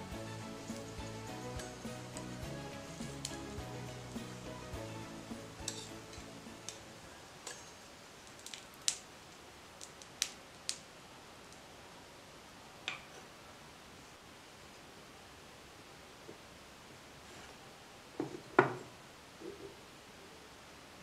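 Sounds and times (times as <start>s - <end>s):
metal spoon clinking on steel: 5.6s - 6.8s, 7.4s - 7.8s.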